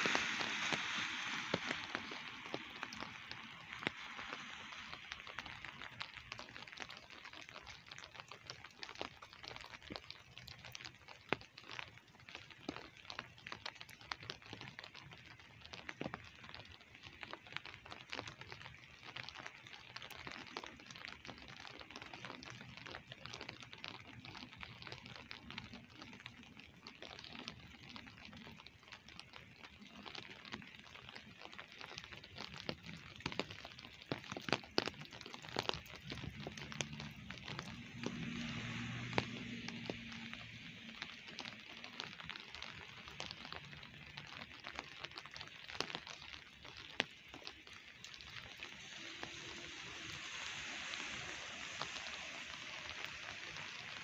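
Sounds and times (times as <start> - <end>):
car tyres hissing on wet road: 0.0 - 7.0, 35.4 - 44.6, 48.2 - 54.0
light rain pattering: 0.0 - 54.0.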